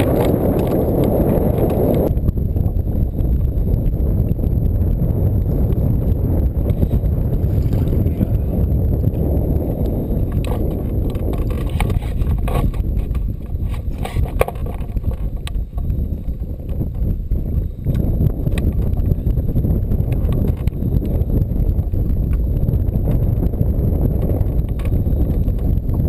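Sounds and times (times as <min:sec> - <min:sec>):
clicks and knocks of gear: 0:00.0 - 0:02.1, 0:09.8 - 0:17.1, 0:17.9 - 0:19.1, 0:20.1 - 0:21.2, 0:24.2 - 0:25.8
wind buffeting microphone: 0:00.0 - 0:26.0.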